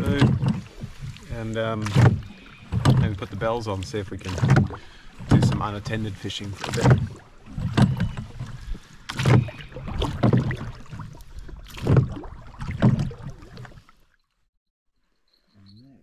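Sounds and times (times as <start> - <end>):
paddle splashing in water: 0.0 - 14.3.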